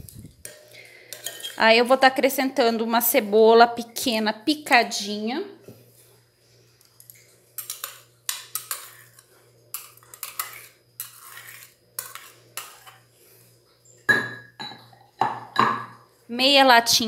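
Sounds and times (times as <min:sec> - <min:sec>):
metal spoon scraping clay bowl: 0:00.4 - 0:01.6, 0:07.6 - 0:13.1.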